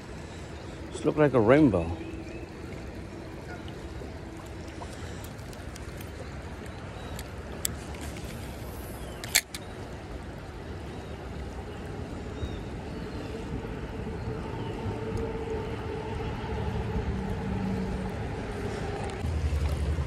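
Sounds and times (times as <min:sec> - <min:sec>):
creek water over stones: 0:00.0 - 0:20.0.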